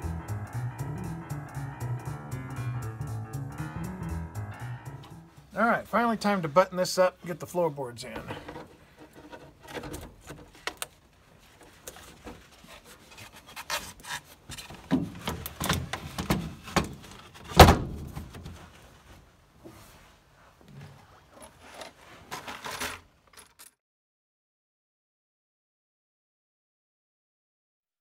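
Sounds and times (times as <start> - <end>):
wooden boards knocking and scraping: 14.5 - 18.6
loud thunk: 14.9 - 18.4.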